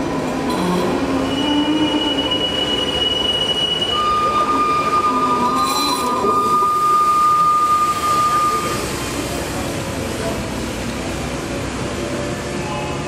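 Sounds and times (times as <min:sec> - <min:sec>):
tram wheels squealing on track: 0:00.1 - 0:09.7.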